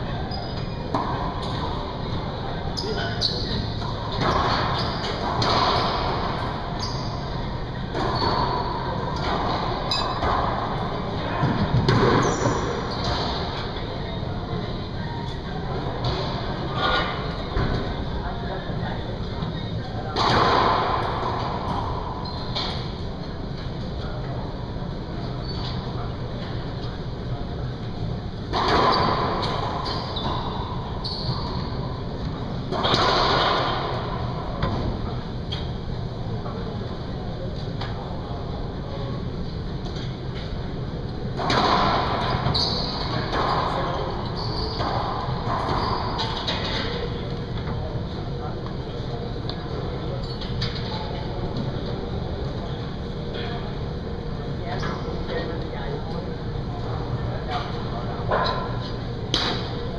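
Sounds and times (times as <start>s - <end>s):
steady low hum: 0.0s - 59.9s
sneaker squeaks on hardwood: 0.2s - 0.9s, 2.7s - 6.1s, 6.7s - 7.4s, 28.8s - 31.8s, 42.4s - 43.3s, 44.2s - 45.0s
ball smacking racquet and walls: 3.8s - 7.1s, 7.9s - 13.7s, 32.7s - 34.9s.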